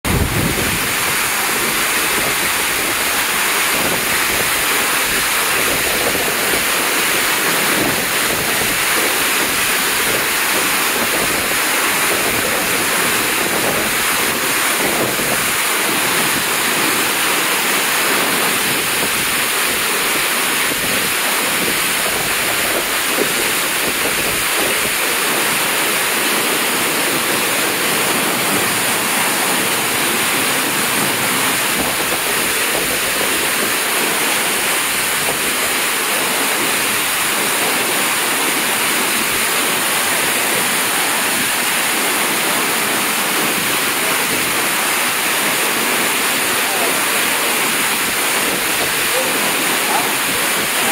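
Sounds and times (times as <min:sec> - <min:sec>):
waterfall rushing: 0:00.0 - 0:50.9.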